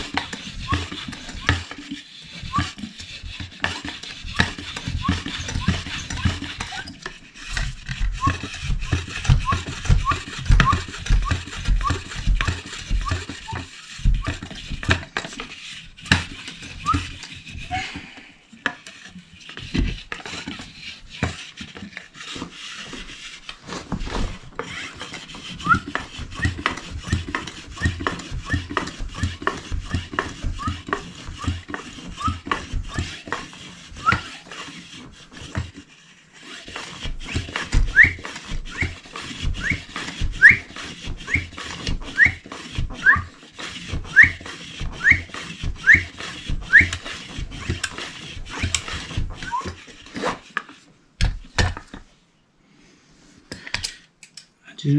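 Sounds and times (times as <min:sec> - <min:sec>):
hand pump knocking: 0:00.0 - 0:17.4, 0:24.6 - 0:33.4
pump squeaking: 0:00.0 - 0:18.0, 0:18.8 - 0:50.6.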